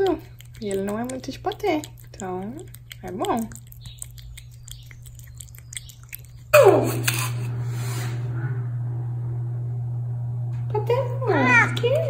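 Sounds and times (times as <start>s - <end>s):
cat chewing and lapping: 0.0s - 8.1s
low room hum: 0.0s - 12.0s.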